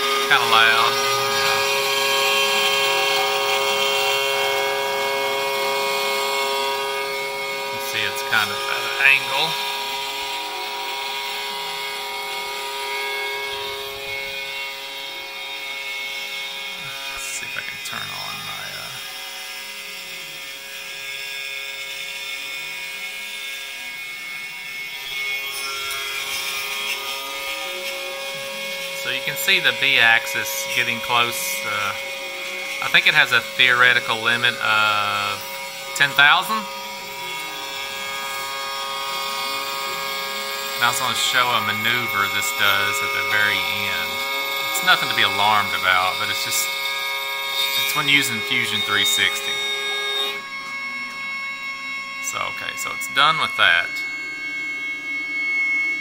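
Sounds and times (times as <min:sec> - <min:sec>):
end mill cutting metal: 0:00.0 - 0:56.0
mill spindle whine: 0:00.0 - 0:56.0.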